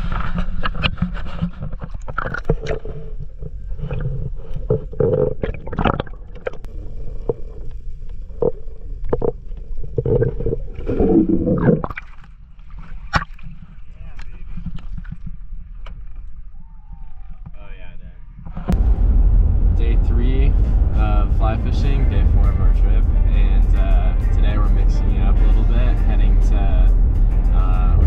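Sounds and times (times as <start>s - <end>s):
water splashing: 0.0s - 16.4s
muffled underwater gurgling: 1.6s - 12.0s.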